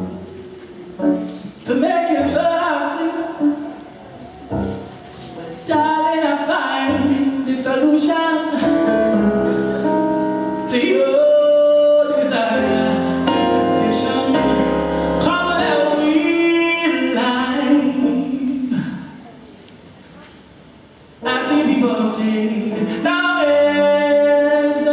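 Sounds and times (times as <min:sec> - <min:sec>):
person singing: 0:01.7 - 0:09.9, 0:10.6 - 0:19.0.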